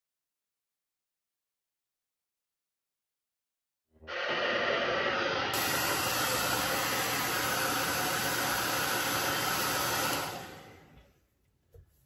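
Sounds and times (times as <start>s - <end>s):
hair dryer blowing: 4.0s - 11.2s.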